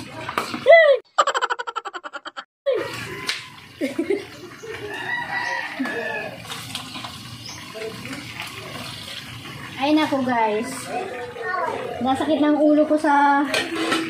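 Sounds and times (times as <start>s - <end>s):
chickens clucking: 1.2s - 7.8s
pork sizzling in hot oil: 2.7s - 14.0s
rooster crowing: 4.7s - 6.6s.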